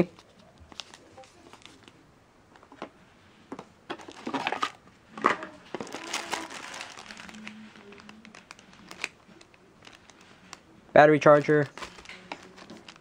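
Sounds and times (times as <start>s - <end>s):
cardboard rustling: 3.9s - 10.6s, 11.3s - 13.0s
plastic packaging crinkling: 4.0s - 13.0s.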